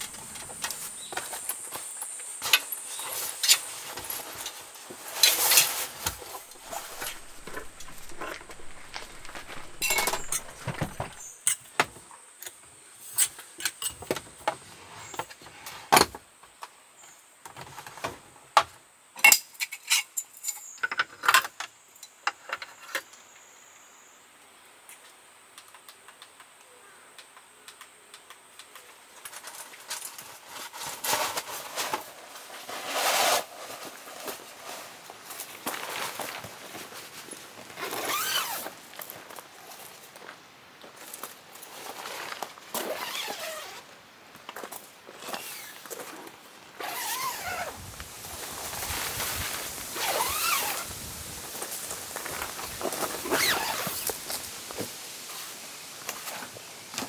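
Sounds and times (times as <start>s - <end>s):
camping gear clicking and clinking: 0.0s - 14.4s, 33.2s - 43.8s, 44.4s - 54.9s
tent fabric rustling: 2.4s - 11.4s, 29.4s - 40.0s, 41.1s - 43.9s, 45.1s - 56.7s
footsteps on gravel: 5.9s - 11.3s
faint high whine: 6.3s - 11.4s.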